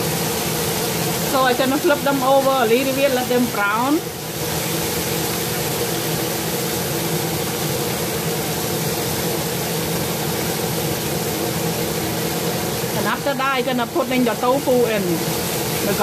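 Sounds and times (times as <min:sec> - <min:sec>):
range hood fan humming: 0:00.0 - 0:16.0
shrimp sizzling in oil: 0:00.0 - 0:16.0.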